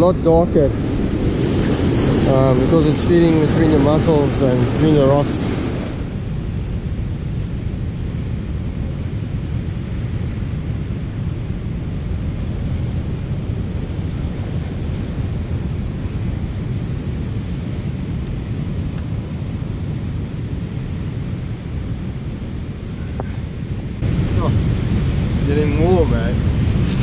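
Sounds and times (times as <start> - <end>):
surf breaking on shore: 0.0 - 6.2, 22.9 - 27.0
wind on microphone: 0.0 - 27.0.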